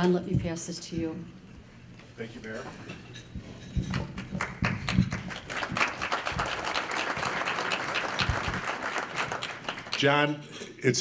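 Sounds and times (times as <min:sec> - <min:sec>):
audience applauding: 0:03.9 - 0:10.2.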